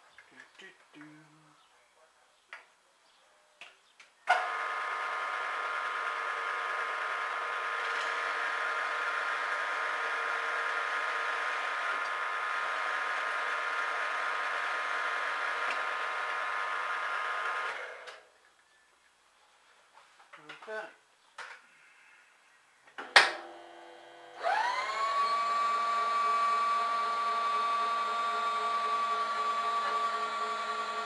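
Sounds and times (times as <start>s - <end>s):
mill-drill motor whine: 4.4s - 18.2s, 23.4s - 31.0s.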